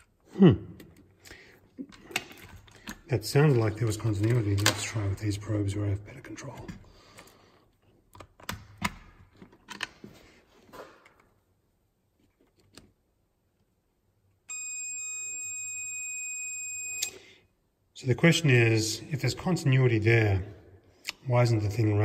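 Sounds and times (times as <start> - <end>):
multimeter continuity beep: 14.5 - 17.2.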